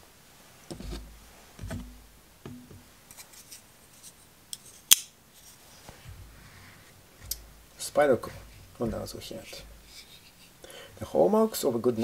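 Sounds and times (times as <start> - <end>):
knife handling clicks: 4.5 - 5.1.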